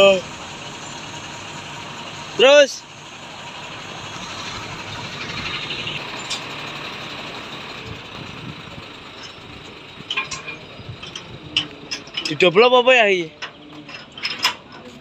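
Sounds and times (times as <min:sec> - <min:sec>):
truck engine running: 0:00.0 - 0:15.0
sharp metallic clinks: 0:09.0 - 0:14.9.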